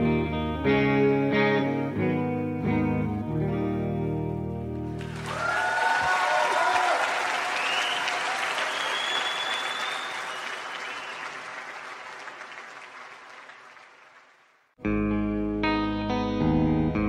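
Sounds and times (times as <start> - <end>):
electric guitar chords: 0.0 - 5.2, 14.8 - 17.0
audience applauding: 5.0 - 14.7
whistles from crowd: 5.3 - 11.8.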